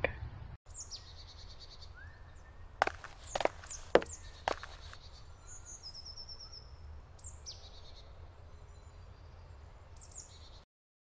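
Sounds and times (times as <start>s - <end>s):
birdsong chirps and trills: 0.7s - 10.6s.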